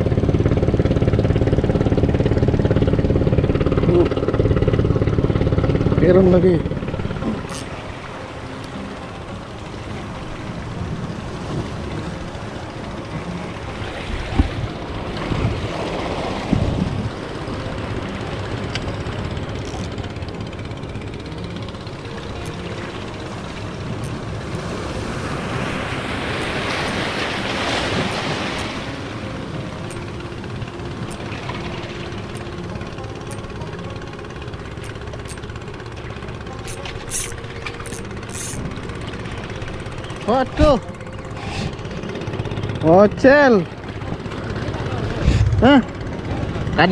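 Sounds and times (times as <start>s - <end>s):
waves washing over rocks: 23.2s - 30.0s.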